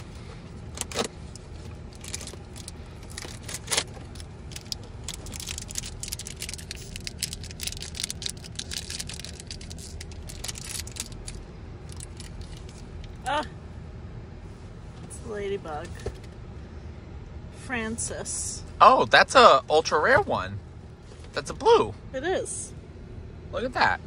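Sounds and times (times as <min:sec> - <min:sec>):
plastic packaging crinkling: 0:00.8 - 0:12.8.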